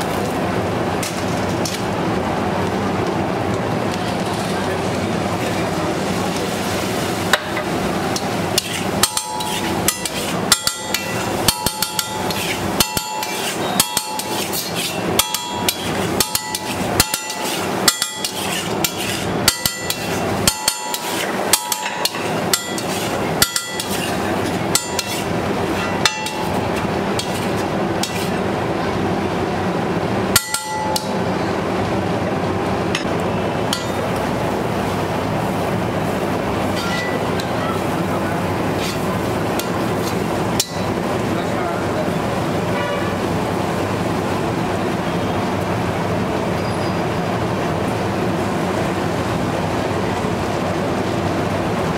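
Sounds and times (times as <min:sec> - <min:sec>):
metal spatula clanking on griddle: 0:07.3 - 0:28.4, 0:30.3 - 0:31.2, 0:33.7 - 0:34.0, 0:36.8 - 0:37.8, 0:38.7 - 0:41.0.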